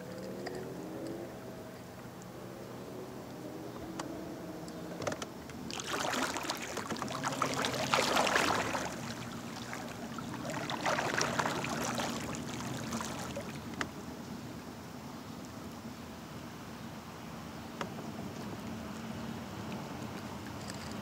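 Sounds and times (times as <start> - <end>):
water splashing and trickling: 5.5 - 13.9.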